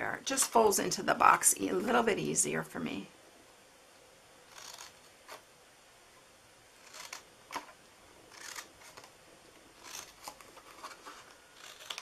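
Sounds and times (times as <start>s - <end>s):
scissors snipping cardstock: 8.3s - 9.1s, 9.8s - 12.0s.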